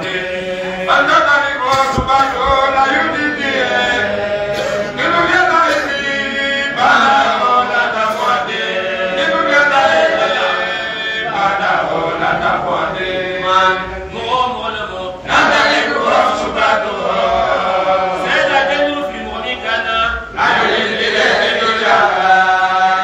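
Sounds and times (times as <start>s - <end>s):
man chanting into microphone: 0.0s - 11.7s, 12.4s - 20.4s.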